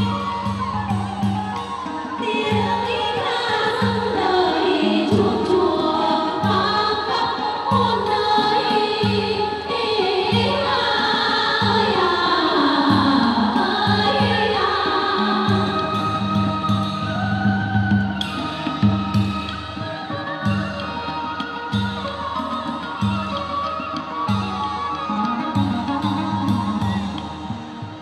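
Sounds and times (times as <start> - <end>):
group of voices singing: 2.3 - 16.6.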